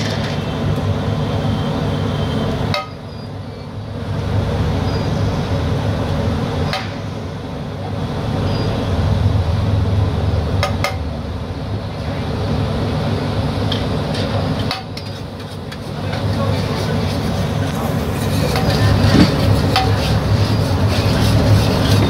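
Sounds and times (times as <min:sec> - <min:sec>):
street traffic rumble: 0:00.0 - 0:22.0
utensils clinking on griddle: 0:18.1 - 0:22.0.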